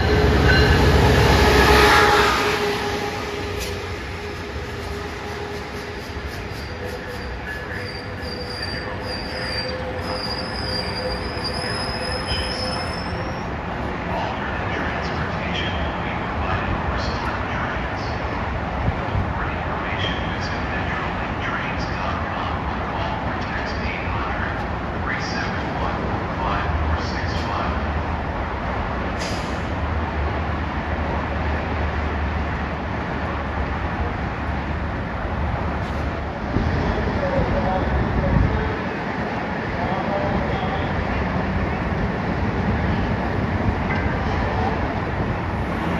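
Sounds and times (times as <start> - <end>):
train wheels squealing on rails: 0.0 - 13.6
train rumbling: 0.0 - 45.9.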